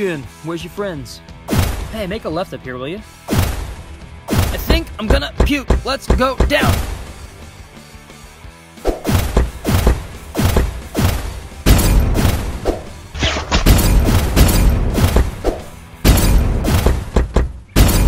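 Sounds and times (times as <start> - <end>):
background music: 0.0 - 18.0
heavy thumps and impact hits: 3.3 - 7.1, 8.9 - 18.0.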